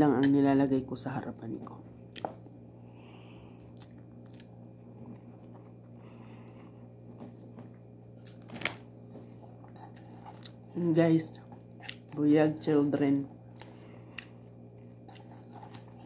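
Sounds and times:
steady low hum: 0.0s - 16.0s
person chewing: 3.1s - 6.0s, 9.4s - 10.7s, 11.4s - 12.1s, 13.5s - 16.0s.

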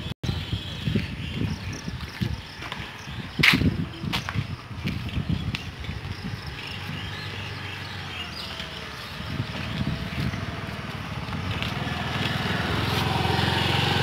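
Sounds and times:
vehicle engine running: 6.4s - 14.0s.

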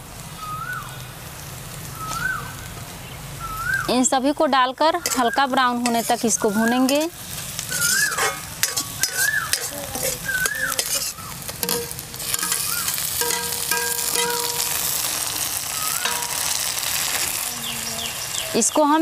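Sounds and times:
oil sizzling: 0.0s - 19.0s
ladle scraping pan: 5.0s - 15.3s
ladle clicking against pan: 6.9s - 14.8s.

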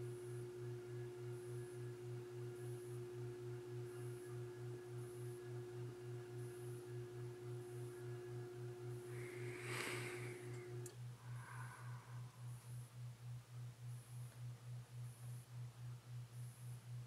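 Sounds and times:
low throbbing hum: 0.0s - 12.8s
faint electrical hum: 0.0s - 17.0s.

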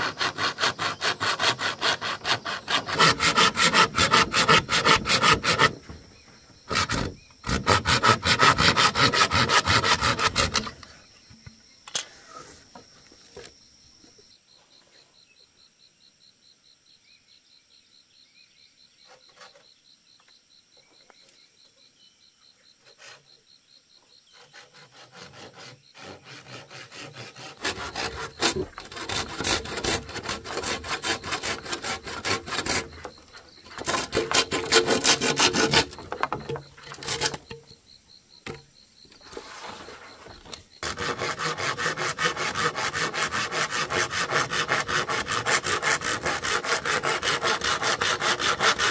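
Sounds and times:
hand saw cutting bamboo: 0.0s - 5.9s, 6.7s - 10.9s, 24.3s - 37.6s, 40.8s - 48.9s.

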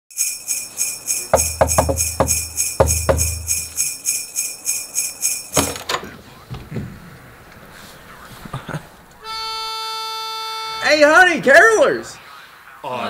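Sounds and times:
sleigh bells shaking: 0.1s - 5.6s
struck notes: 0.9s - 4.4s, 9.2s - 11.4s.

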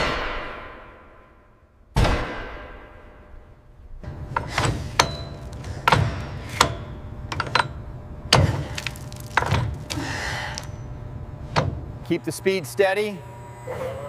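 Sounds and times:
metal knocks and clanks: 4.0s - 9.9s
wrench grinding scrape: 4.3s - 7.8s.

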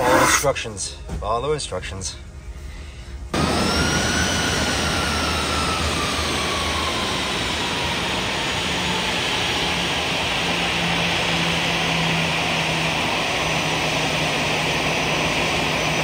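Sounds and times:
jet engine whine: 3.2s - 16.0s
jet engine roaring: 3.4s - 16.0s.

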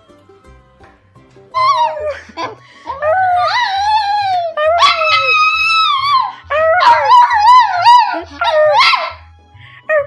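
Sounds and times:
background music with bass line: 0.0s - 3.3s
small dog howling: 1.6s - 2.2s, 3.0s - 9.2s.

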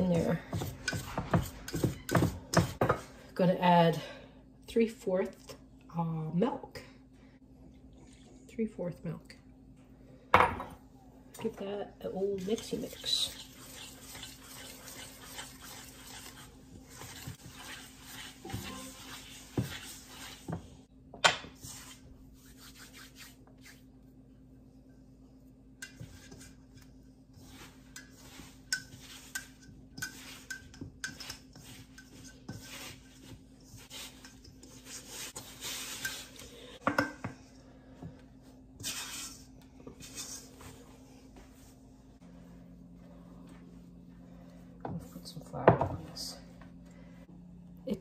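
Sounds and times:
utensil scraping a bowl: 0.0s - 2.8s, 12.3s - 20.6s, 25.8s - 36.8s.

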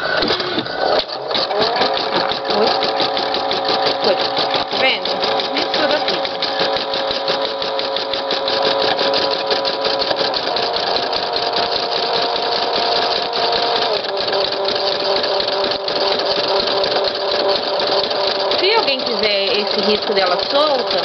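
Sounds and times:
machine motor hum: 0.0s - 21.0s
embroidery machine needle strokes: 0.2s - 21.0s.

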